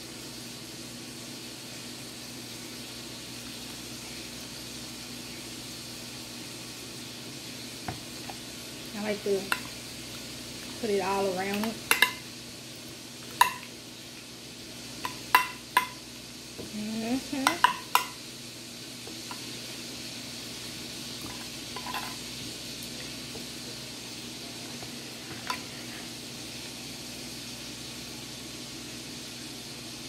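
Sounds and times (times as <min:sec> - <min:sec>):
steady hiss: 0:00.0 - 0:30.0
spoon clinking against glass dish: 0:13.4 - 0:13.7, 0:15.1 - 0:16.0, 0:17.5 - 0:18.2.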